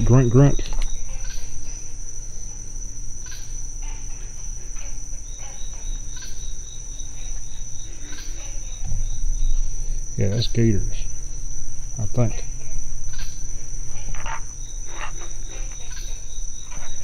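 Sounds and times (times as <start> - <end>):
crickets trilling: 0.0 - 17.0
pulsing chirp: 0.0 - 17.0.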